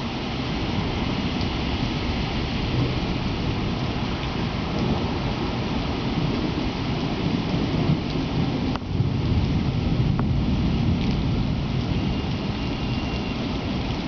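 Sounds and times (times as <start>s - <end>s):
deep rumble: 0.0s - 12.7s
heavy rain on pavement: 0.0s - 14.0s.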